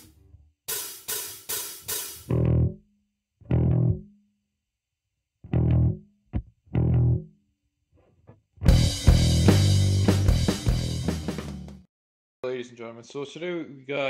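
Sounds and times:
guitar and bass chord stabs: 0:02.3 - 0:02.8, 0:03.4 - 0:04.1, 0:05.4 - 0:07.3, 0:08.6 - 0:11.8.

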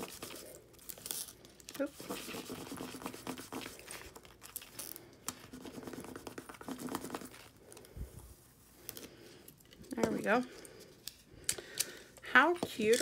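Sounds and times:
plastic tape crinkling: 0:00.0 - 0:02.4.

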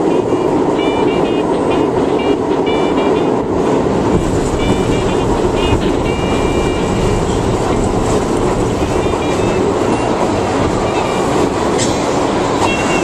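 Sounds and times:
subway train rumble: 0:00.0 - 0:13.0
train squealing: 0:04.2 - 0:13.0.

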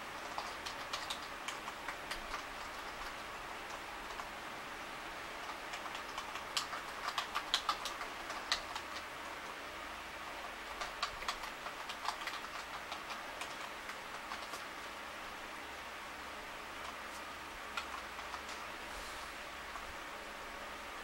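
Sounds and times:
steady low hiss: 0:00.0 - 0:21.0
typing on keyboard: 0:00.2 - 0:04.3, 0:05.4 - 0:09.1, 0:10.4 - 0:14.9, 0:17.7 - 0:18.7.

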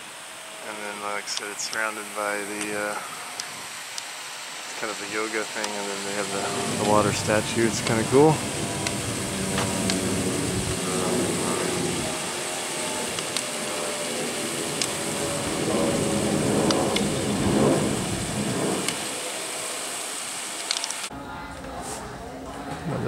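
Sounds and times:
fountain water jets: 0:00.0 - 0:21.1
wind: 0:00.0 - 0:23.0
faint voices: 0:04.7 - 0:08.8, 0:09.4 - 0:14.2, 0:21.1 - 0:23.0
wind rumbling on microphone: 0:05.9 - 0:19.9.

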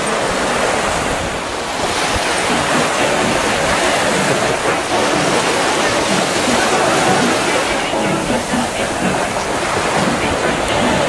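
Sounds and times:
small waves breaking on shore: 0:00.0 - 0:11.0.

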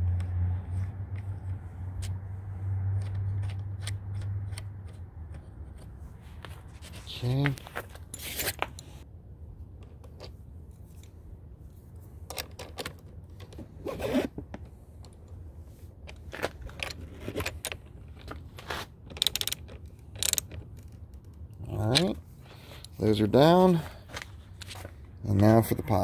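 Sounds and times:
ratcheting wrench clicking: 0:19.1 - 0:21.4.

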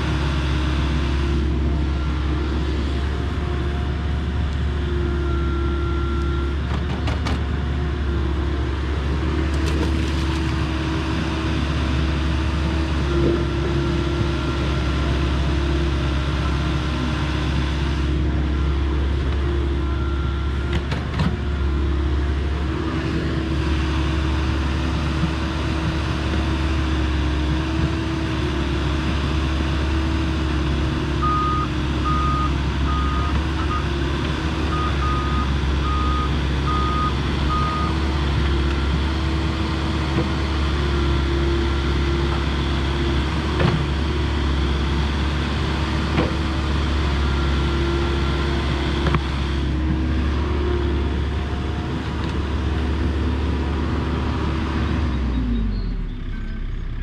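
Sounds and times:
excavator diesel engine running: 0:00.0 - 0:57.0
reversing alarm beeping: 0:31.2 - 0:33.9.

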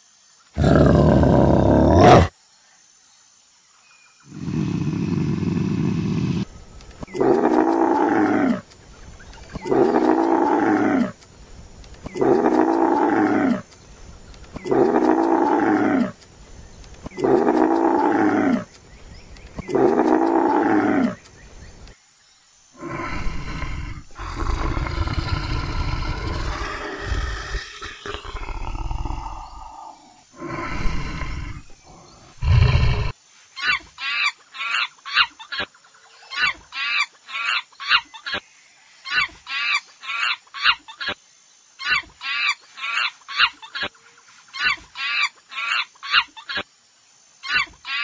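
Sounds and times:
rough low animal call: 0:22.8 - 0:33.2
animal calling: 0:22.8 - 0:38.4.

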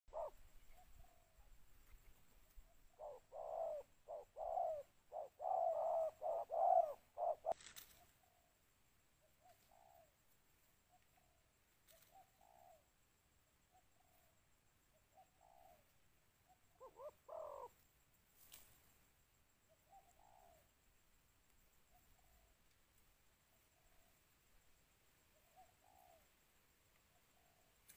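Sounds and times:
doves cooing: 0:00.1 - 0:08.5, 0:10.9 - 0:12.9, 0:15.1 - 0:15.9, 0:16.5 - 0:17.8, 0:19.8 - 0:20.7, 0:25.4 - 0:26.3.

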